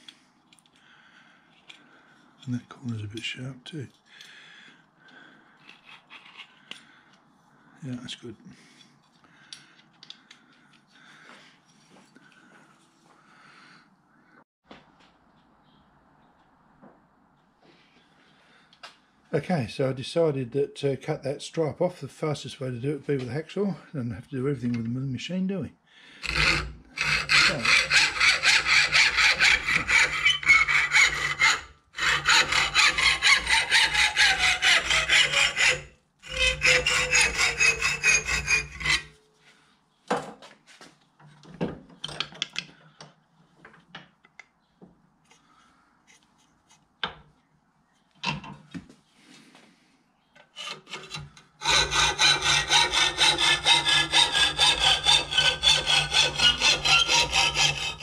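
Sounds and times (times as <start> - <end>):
hacksaw cutting metal: 26.2 - 39.2, 50.4 - 58.0.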